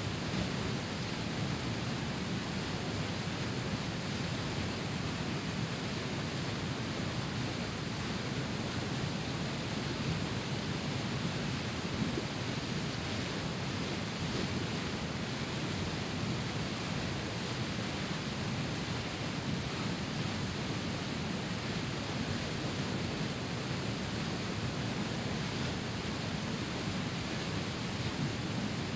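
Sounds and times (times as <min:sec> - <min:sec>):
river rushing over rock ledges: 0:00.0 - 0:28.9.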